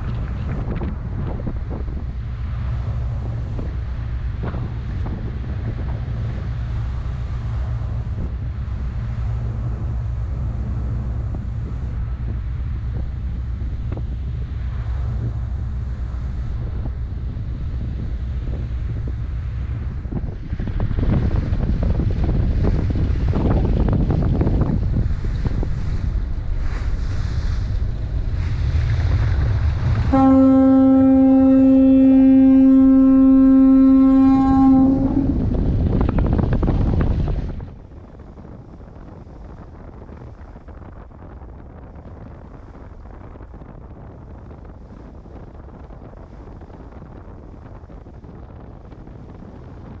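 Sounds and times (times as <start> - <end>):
wind buffeting microphone: 0.0 - 50.0
ship's horn blast: 29.9 - 35.8.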